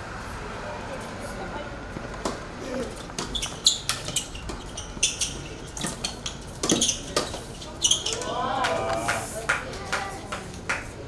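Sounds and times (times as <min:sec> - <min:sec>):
shoes squeaking on court: 0:02.0 - 0:08.4.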